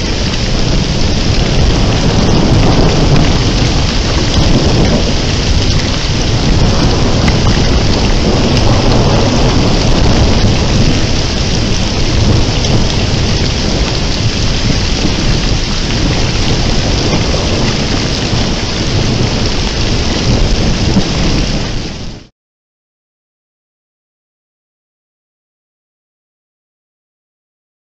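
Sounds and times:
low rumble of thunder: 0:00.0 - 0:22.3
rain pouring: 0:00.0 - 0:22.3.

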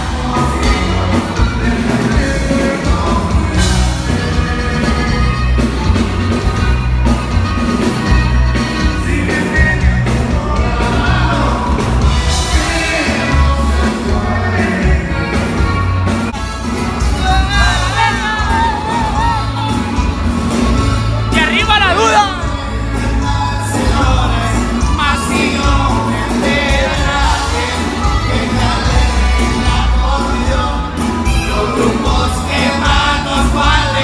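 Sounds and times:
man singing: 0:00.0 - 0:16.2, 0:16.9 - 0:20.1, 0:21.2 - 0:34.0
accordion: 0:00.0 - 0:34.0
drum kit: 0:00.0 - 0:34.0
electric bass: 0:00.0 - 0:34.0.

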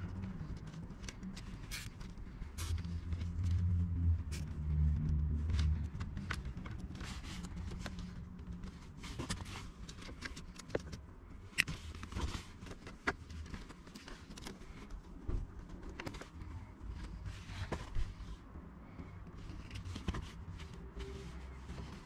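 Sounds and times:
low rumble: 0:02.4 - 0:08.7.

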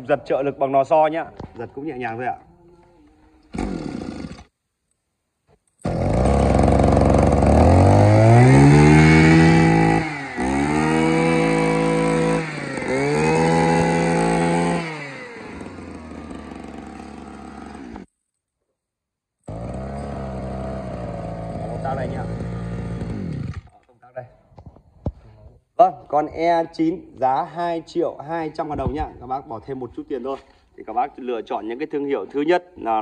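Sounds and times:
brush cutter engine revving: 0:03.5 - 0:04.5, 0:05.8 - 0:18.1, 0:19.4 - 0:23.8.

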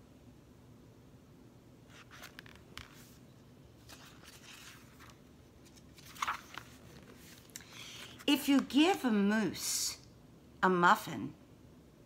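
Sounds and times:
book pages rustling: 0:01.9 - 0:09.0.

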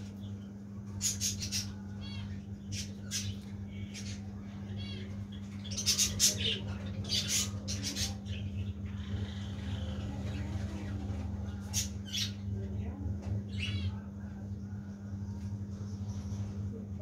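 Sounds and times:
steady low hum: 0:00.0 - 0:17.0
budgerigars chirping: 0:01.0 - 0:12.4.

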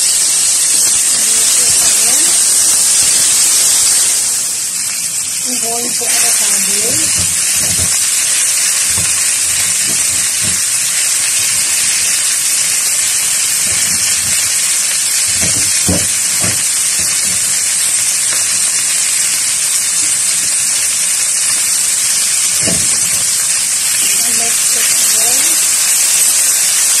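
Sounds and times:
vegetables sizzling in frying pan: 0:00.0 - 0:27.0
soft knocks: 0:07.0 - 0:11.1, 0:13.6 - 0:17.5.

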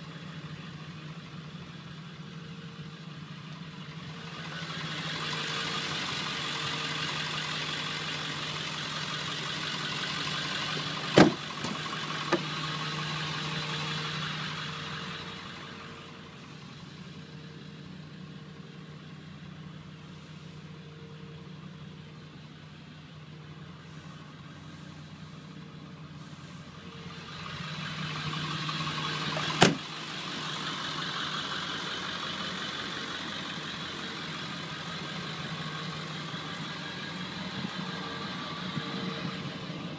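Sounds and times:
diesel engine idling: 0:00.0 - 0:39.9.

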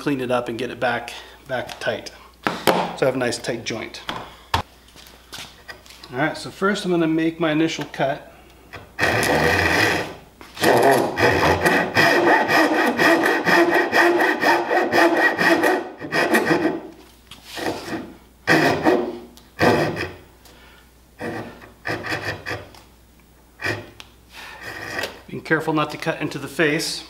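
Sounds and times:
hand saw rasping strokes: 0:09.0 - 0:20.2, 0:21.2 - 0:22.7, 0:23.6 - 0:25.2.

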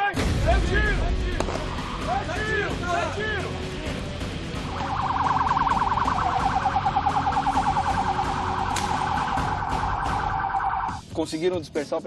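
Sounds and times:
police siren yelping: 0:04.7 - 0:11.0.

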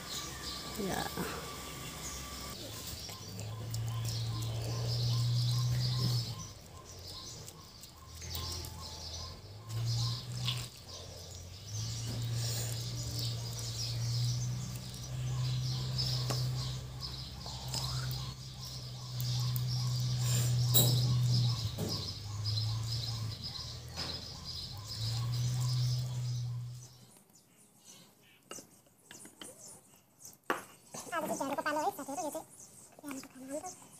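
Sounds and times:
small birds chirping: 0:00.0 - 0:33.9
loud low steady hum: 0:08.0 - 0:24.0.

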